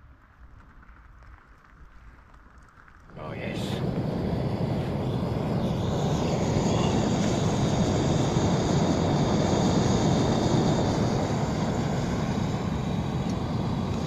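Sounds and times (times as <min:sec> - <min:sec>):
gas stove burner hissing: 0:03.2 - 0:14.0.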